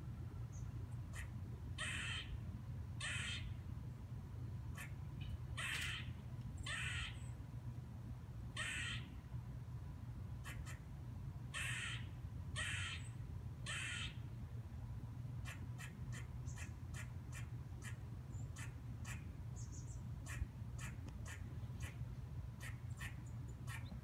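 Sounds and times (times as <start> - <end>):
squirrel barking: 1.1 - 2.4, 3.0 - 3.6, 4.7 - 7.3, 8.6 - 9.1, 10.4 - 10.8, 11.6 - 14.2, 15.4 - 22.0, 22.6 - 24.0.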